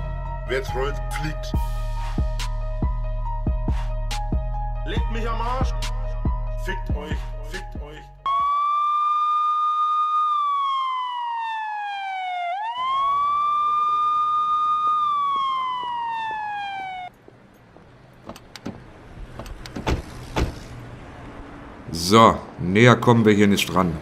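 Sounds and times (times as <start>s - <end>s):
siren wailing: 8.3s - 17.1s.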